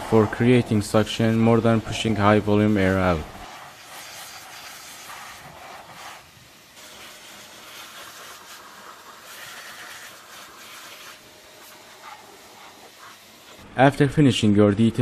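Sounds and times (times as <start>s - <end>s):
vacuum blower air hissing: 0.0s - 13.7s.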